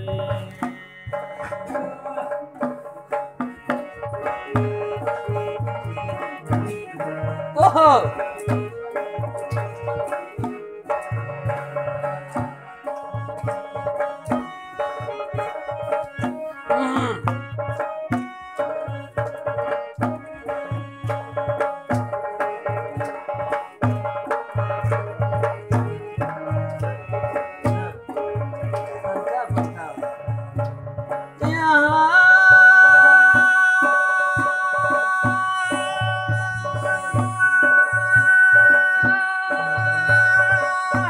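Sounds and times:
hand drum beating: 0:00.0 - 0:41.0
long held sliding note: 0:32.3 - 0:41.0
melodic instrument line: 0:32.7 - 0:41.0.

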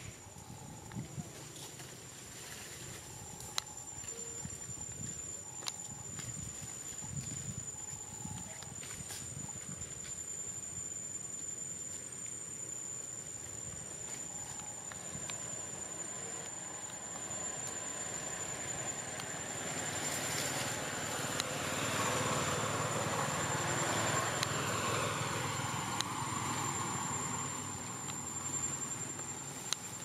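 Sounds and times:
high-pitched insect drone: 0:00.0 - 0:30.0
vehicle passing by: 0:19.6 - 0:27.8.

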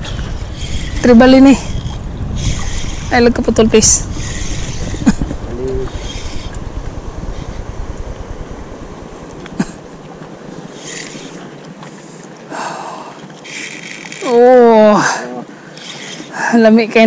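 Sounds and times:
wind buffeting microphone: 0:00.0 - 0:11.9.

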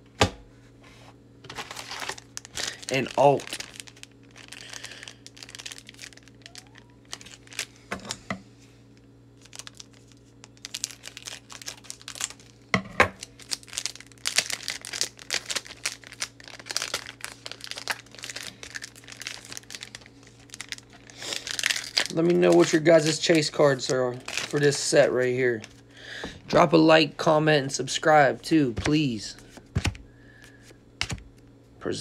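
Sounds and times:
foil wrapper crinkling and tearing: 0:01.4 - 0:07.8, 0:09.4 - 0:25.9
cards rustling and clicking: 0:21.6 - 0:25.8, 0:28.6 - 0:30.0.

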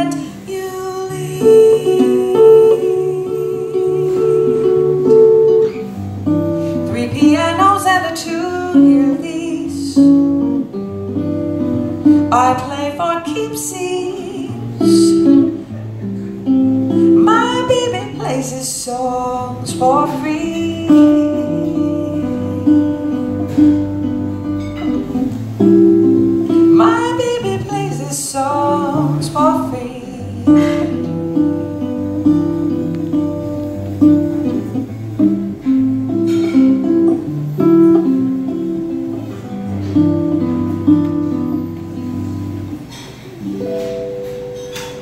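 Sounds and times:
woman singing: 0:00.0 - 0:05.3, 0:06.8 - 0:10.6, 0:12.2 - 0:15.6, 0:17.2 - 0:24.0, 0:26.6 - 0:31.4
acoustic guitar fingerpicking: 0:00.0 - 0:45.0.

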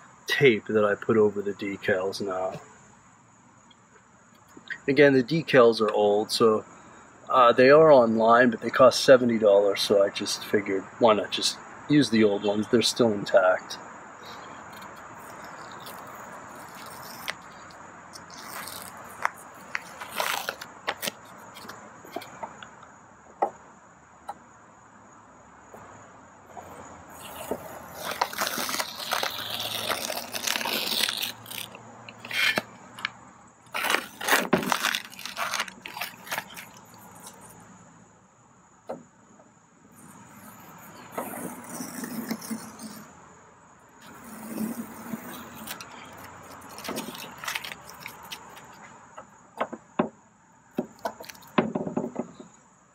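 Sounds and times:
tape and paper peeling off: 0:14.4 - 0:22.3, 0:27.1 - 0:37.6, 0:40.0 - 0:43.1, 0:44.0 - 0:48.9, 0:50.9 - 0:51.6.

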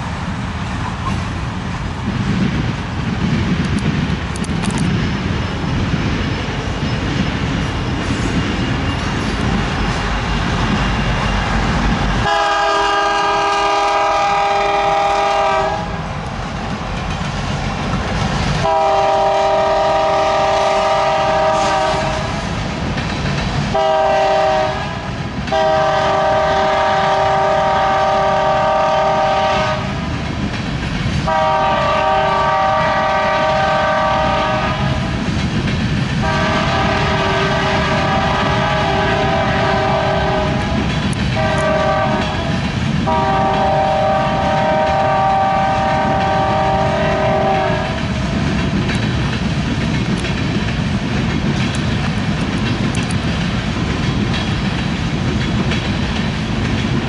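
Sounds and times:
freight train rumbling past: 0:00.0 - 0:57.0
locomotive air horn blasts: 0:12.2 - 0:16.0, 0:18.6 - 0:22.3, 0:23.7 - 0:29.9, 0:31.3 - 0:35.0, 0:36.2 - 0:40.7, 0:41.4 - 0:48.0.

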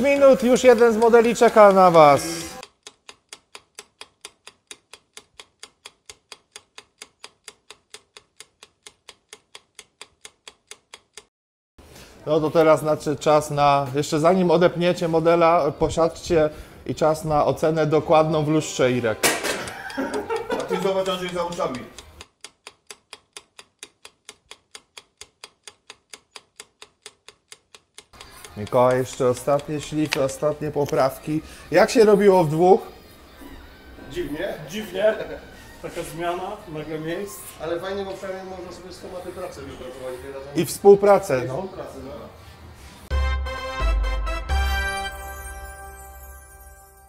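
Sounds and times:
clock ticking: 0:00.0 - 0:11.3, 0:17.1 - 0:33.1.

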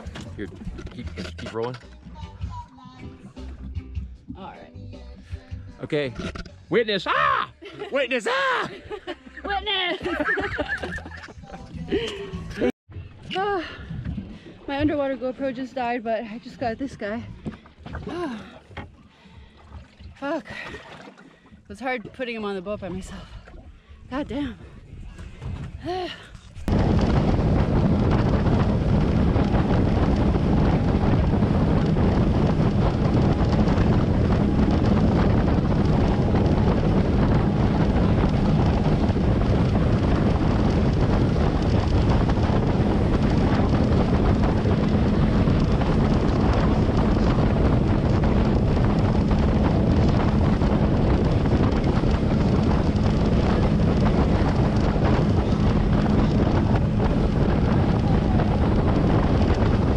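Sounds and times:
wind buffeting microphone: 0:00.0 - 0:02.6, 0:08.7 - 0:59.9
outboard engine drone: 0:00.0 - 0:59.9.

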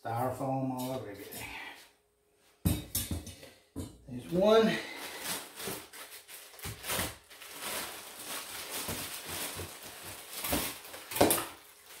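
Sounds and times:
plastic wrap and styrofoam rustling: 0:04.2 - 0:12.0.

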